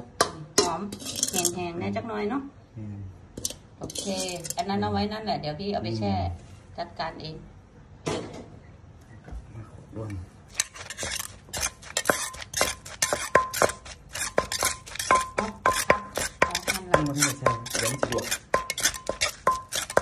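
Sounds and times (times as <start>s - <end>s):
metal spoon clinking in mortar: 0.6s - 1.6s, 3.4s - 4.6s, 10.5s - 20.0s.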